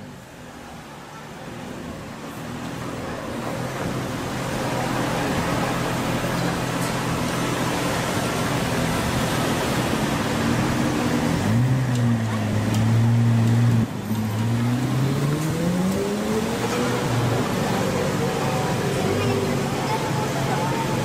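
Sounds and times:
car engine revving: 7.2 - 21.0.

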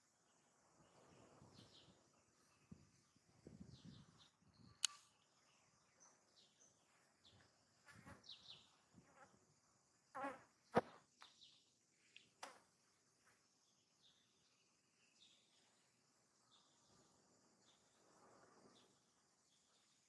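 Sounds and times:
faint chirps: 0.0 - 20.0
sharp click: 4.8 - 5.1.

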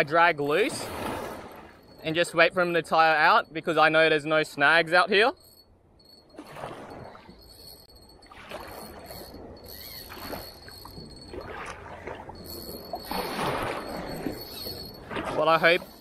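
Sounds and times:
thin high-pitched tone: 7.2 - 16.0.

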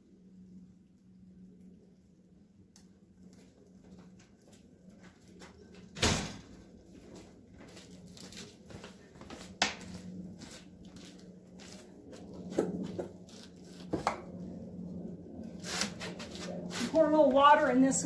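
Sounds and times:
wood fire crackling: 0.0 - 18.0.

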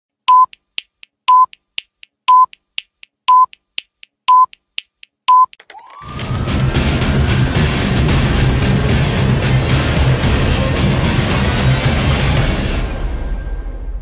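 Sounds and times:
short high beeps: 0.3 - 0.6, 2.3 - 2.6, 3.3 - 3.6, 4.3 - 4.6, 5.3 - 5.6
faint timer ticks: 0.3 - 5.6
loud music: 6.0 - 13.1.

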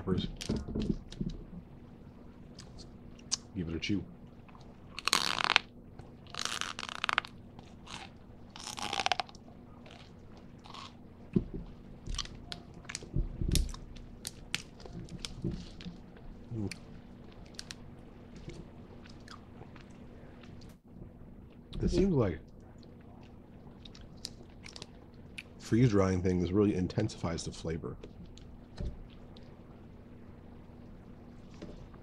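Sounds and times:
crunchy candy being chewed: 4.5 - 11.0, 22.7 - 25.6.

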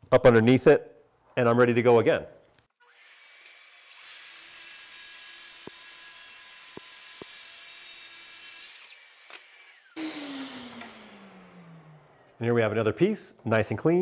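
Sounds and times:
track saw cutting wood: 2.9 - 12.4
dust extractor running: 10.0 - 12.4.

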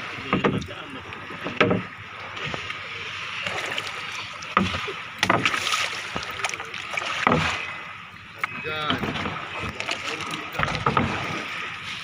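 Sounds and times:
sharp knocks on boat: 0.0 - 2.7, 4.4 - 7.7, 8.4 - 11.6
water splashing against boat hull: 0.0 - 12.0.

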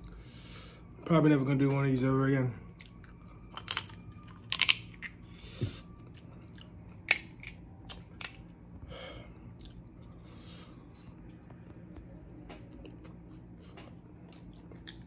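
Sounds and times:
shells clicking and cracking: 3.5 - 5.2, 7.0 - 8.5
chewing: 9.5 - 10.5, 11.6 - 15.0.

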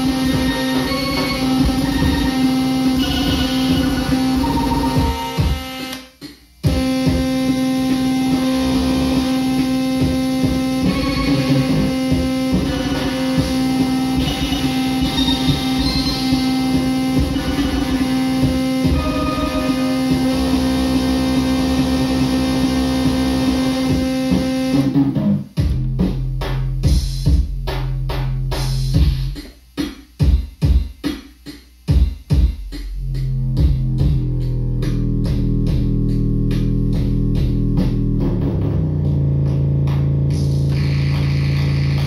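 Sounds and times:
glitchy electronic tones: 0.0 - 25.2.

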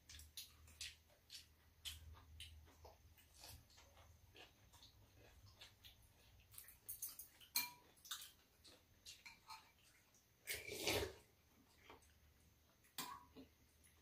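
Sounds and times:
eating sound: 0.0 - 12.2
spoons clinking on ceramic bowls: 6.6 - 8.0.

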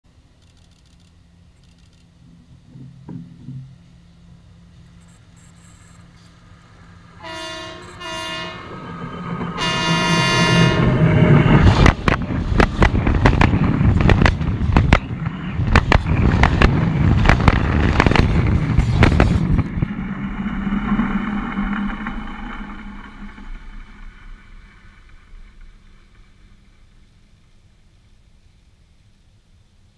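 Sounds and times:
train rumble: 0.8 - 29.9
train horn blasts: 7.2 - 9.0, 9.6 - 11.9.

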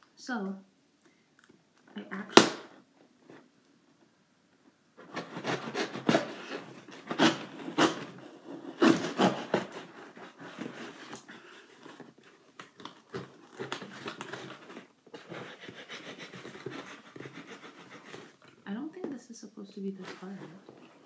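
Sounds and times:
knife slicing packing tape: 5.0 - 11.2
tape and cardboard rustling: 5.0 - 19.2, 19.9 - 21.0.

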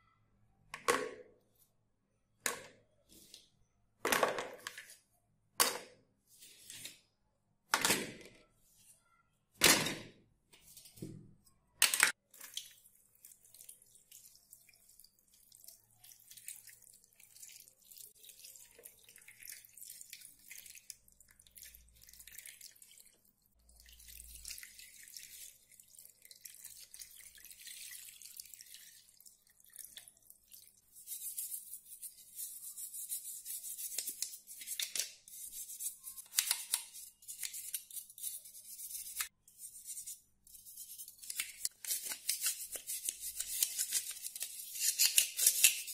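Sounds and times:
water trickling into tub: 12.4 - 30.9
toothbrush scrubbing plastic: 23.8 - 45.9.

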